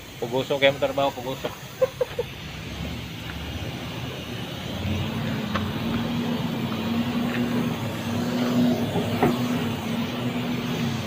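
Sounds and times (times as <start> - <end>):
engine running with low hum: 0.0 - 11.0.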